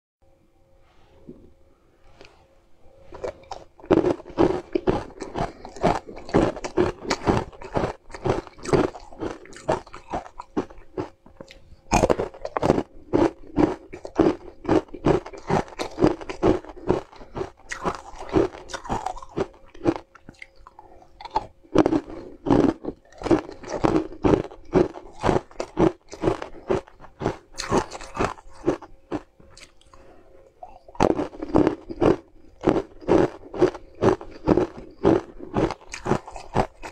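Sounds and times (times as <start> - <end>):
crunching and chewing ice: 3.1 - 36.9.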